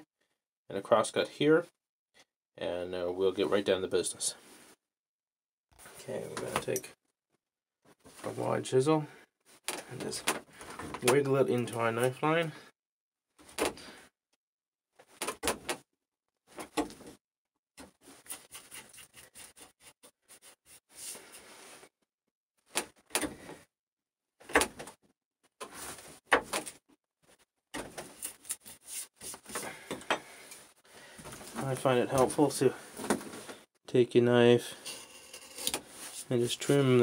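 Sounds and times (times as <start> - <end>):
chisel scraping wood: 34.7 - 36.2.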